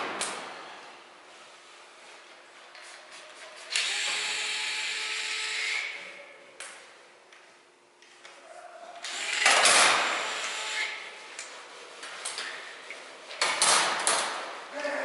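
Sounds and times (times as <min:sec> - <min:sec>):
cordless drill running: 0:03.7 - 0:05.9, 0:09.0 - 0:11.0.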